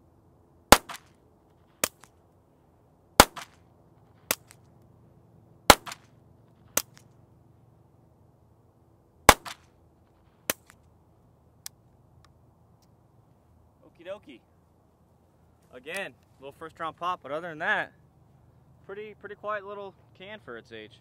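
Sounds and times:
suppressed pistol shots: 0.7 - 1.2, 3.2 - 3.6, 5.7 - 6.1, 9.3 - 9.6.

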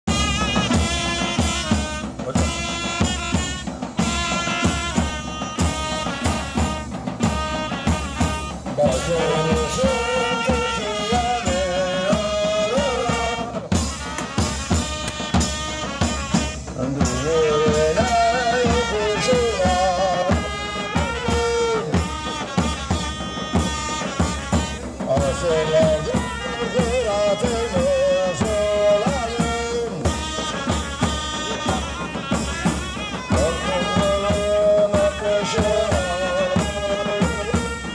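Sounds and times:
horns playing melody: 0.0 - 37.9
small kettle drums: 0.1 - 27.0
cymbals: 0.1 - 37.9
large drums beating: 0.1 - 37.9.

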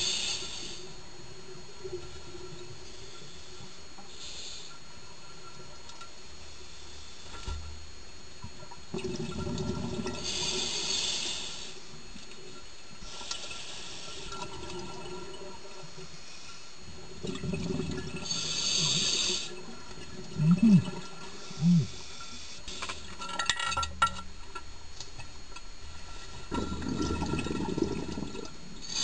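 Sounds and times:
scuba exhale bubbles: 8.8 - 11.5, 16.9 - 22.4, 26.0 - 29.0.

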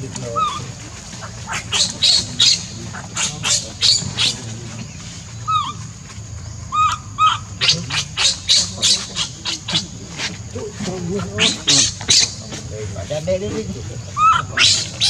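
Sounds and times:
baby monkey cooing: 0.0 - 12.6, 13.5 - 15.0
baby monkey shrill cries: 0.4 - 0.6, 5.4 - 5.8, 6.7 - 9.6, 14.2 - 15.0.

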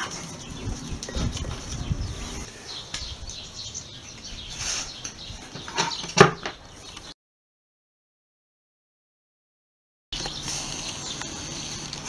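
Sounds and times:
birds chirping: 0.0 - 7.2, 10.2 - 12.0
handling boards and tools: 4.6 - 6.6.

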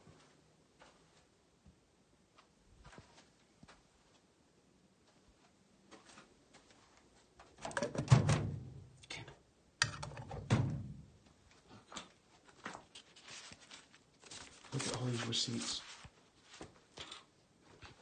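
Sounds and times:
objects knocking and scraping: 7.6 - 8.2, 9.8 - 10.6.

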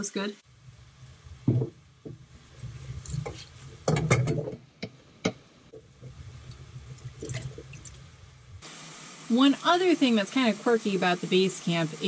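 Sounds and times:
sponge scrubbing pot: 2.5 - 4.4
dishware clinking and knocking: 3.8 - 4.6.

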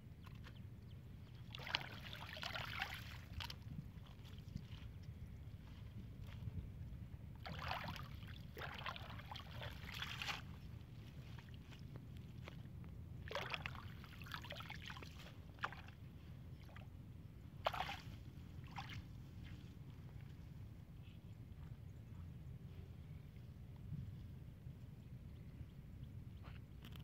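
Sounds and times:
water splashing and sloshing: 1.3 - 6.4, 7.3 - 20.5
steady low rumble: 3.1 - 27.0.

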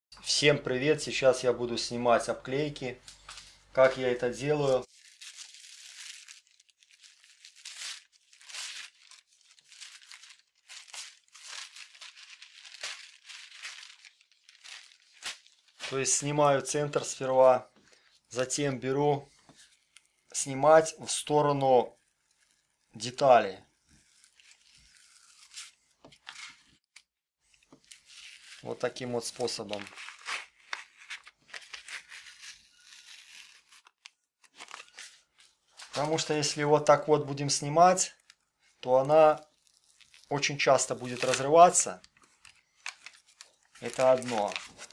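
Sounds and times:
paper ripping and crinkling: 3.2 - 16.4, 23.8 - 26.8, 27.5 - 36.6, 39.0 - 44.9
masking tape peeling and tearing: 23.8 - 26.7, 29.7 - 35.1, 39.4 - 40.3.

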